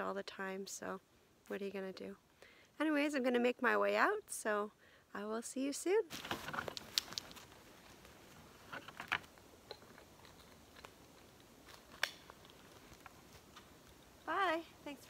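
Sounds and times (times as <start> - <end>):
harness clicking: 6.1 - 7.6, 8.6 - 14.3.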